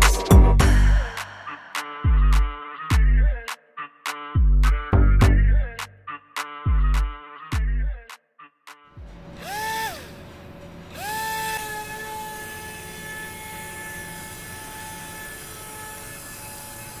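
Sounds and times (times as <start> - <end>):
small motor high whine: 9.0 - 17.0.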